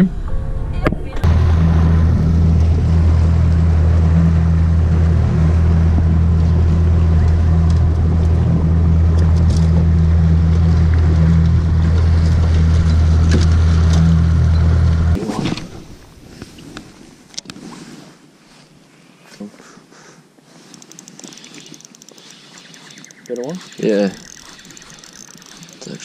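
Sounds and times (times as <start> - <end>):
outboard motor running: 0.3 - 15.2, 20.7 - 26.0.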